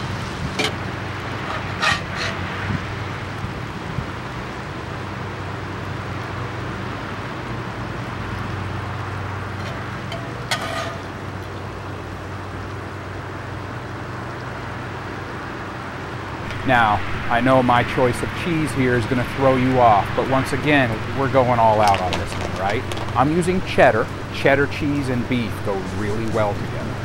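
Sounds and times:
short scrapes: 1.4 - 2.6, 9.6 - 11.1.

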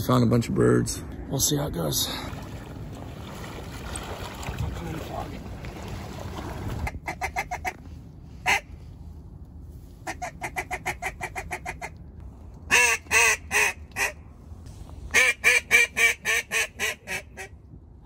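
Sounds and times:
duck call clucks and quacks: 6.8 - 7.8, 8.4 - 8.7, 10.0 - 12.0, 12.7 - 14.2, 15.1 - 17.6.

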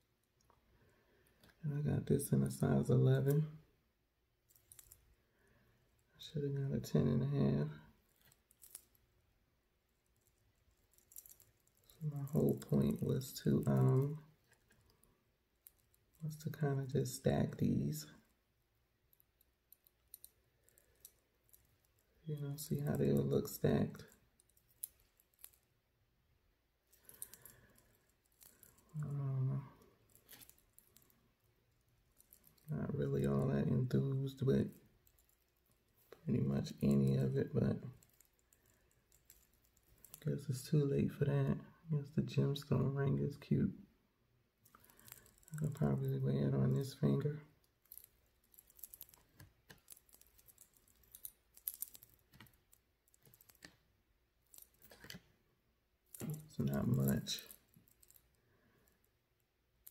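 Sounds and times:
metal rings clicking together: 8.1 - 9.0, 10.1 - 14.8, 24.0 - 25.7, 26.9 - 29.0, 32.2 - 32.7, 38.0 - 40.2, 44.7 - 45.8, 47.8 - 53.7, 56.1 - 58.3.

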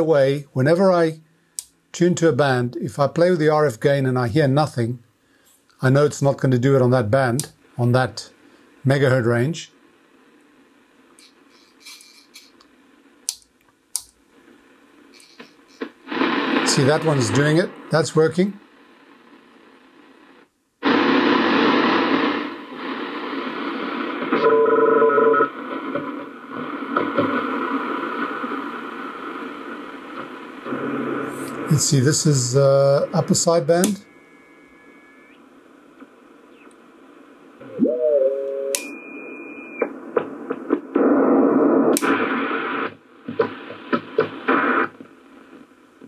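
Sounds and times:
radio static: 5.8 - 10.4, 14.4 - 46.0
steady radio tones: 5.8 - 13.2, 14.4 - 46.0
radio whistle: 20.8 - 28.3, 32.9 - 35.4, 37.6 - 40.1.

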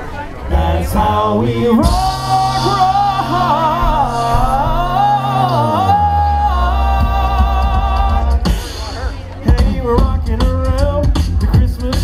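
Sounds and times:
person singing long notes: 0.5 - 8.5
bass note: 0.5 - 10.9.

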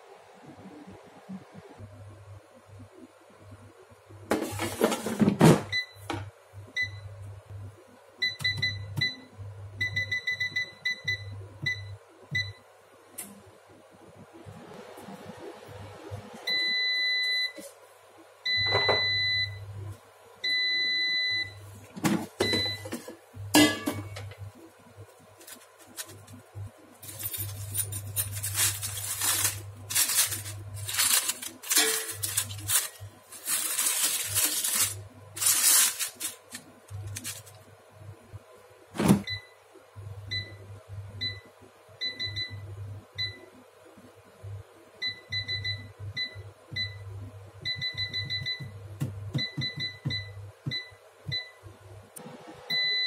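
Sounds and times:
air fryer long beeps: 5.6 - 7.2, 8.2 - 12.7, 16.4 - 17.6, 18.4 - 19.8, 20.4 - 21.8, 22.4 - 22.9, 39.1 - 43.6, 45.0 - 51.7, 52.3 - 53.0
tongs scraping on parchment paper: 27.0 - 37.6.

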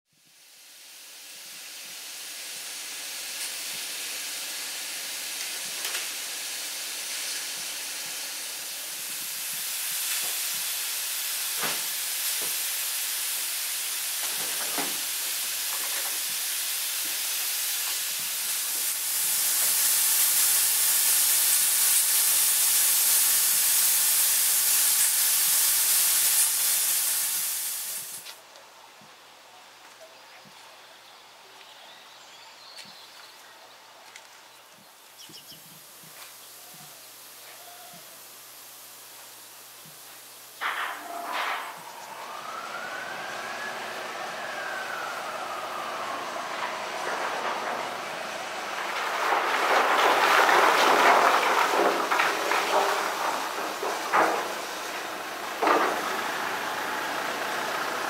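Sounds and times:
steam locomotive hissing steam: 0.1 - 28.4, 35.0 - 58.0.

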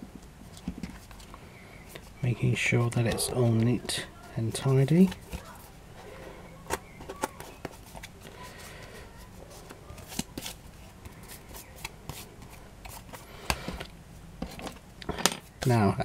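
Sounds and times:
paper and card rustling: 3.0 - 14.8.

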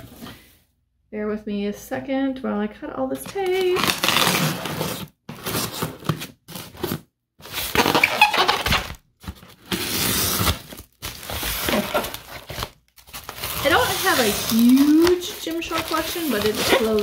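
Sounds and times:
scissors cutting packing tape: 3.4 - 6.2, 9.7 - 17.0.

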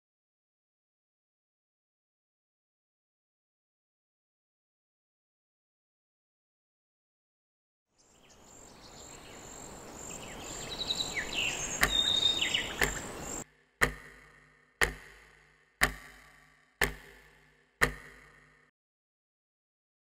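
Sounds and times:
sharp clicks: 11.5 - 18.7.

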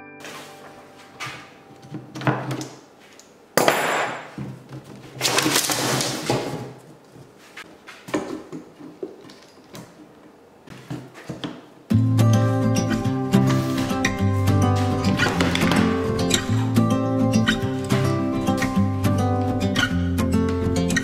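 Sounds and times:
wood rasping scrapes: 12.4 - 18.2
wooden strips knocking and clicking: 15.1 - 16.1.

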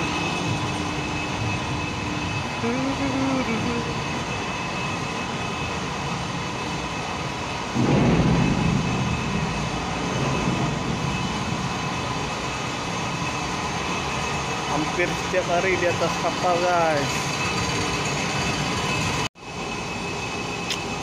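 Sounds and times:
ship machinery drone: 0.0 - 21.0
sudden rush of noise: 7.6 - 14.0.

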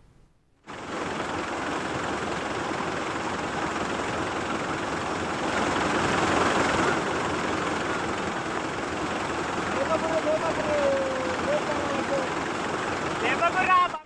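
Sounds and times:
floodwater rushing over road: 0.7 - 14.0.

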